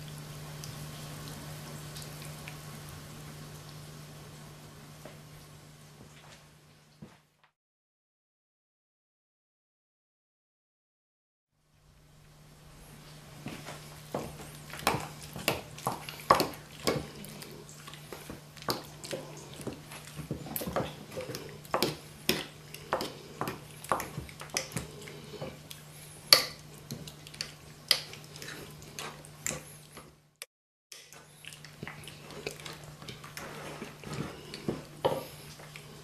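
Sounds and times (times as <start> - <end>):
steady low hum: 11.7 - 30.4.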